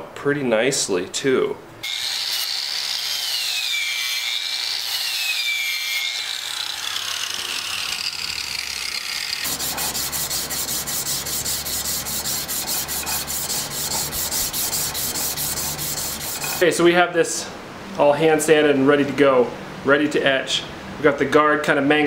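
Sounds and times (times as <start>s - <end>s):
angle grinder on steel: 1.8s - 16.7s
sandpaper rubbing on steel: 9.2s - 16.8s.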